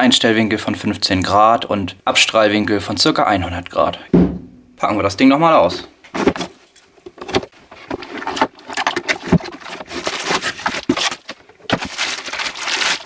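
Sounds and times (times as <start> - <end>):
small knocks and scrapes: 6.1 - 13.0
cardboard box being opened: 7.2 - 13.0
plastic film crinkling: 7.7 - 13.0.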